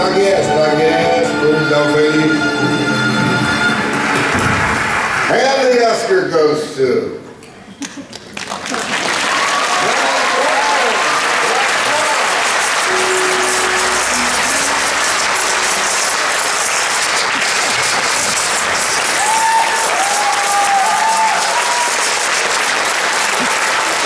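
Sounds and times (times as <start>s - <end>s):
music playing: 0.0s - 5.0s, 11.4s - 22.4s
audience applauding: 3.8s - 5.8s, 7.8s - 24.0s.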